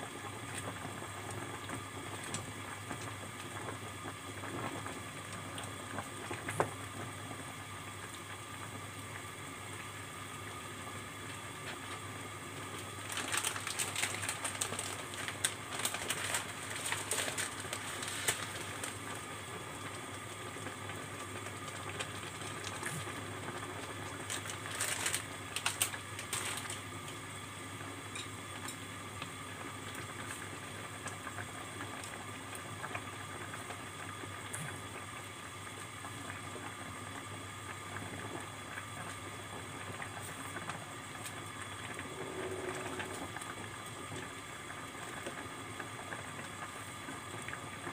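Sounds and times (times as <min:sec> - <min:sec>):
water boiling in a pot: 0:00.0 - 0:47.9
sharp clicking and crackling: 0:13.0 - 0:19.0, 0:24.2 - 0:27.2.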